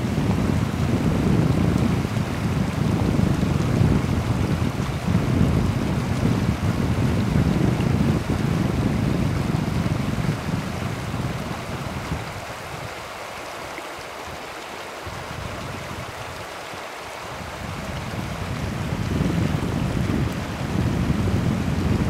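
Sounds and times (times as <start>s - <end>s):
river water rushing: 0.0s - 22.0s
wind buffeting microphone: 0.0s - 22.0s.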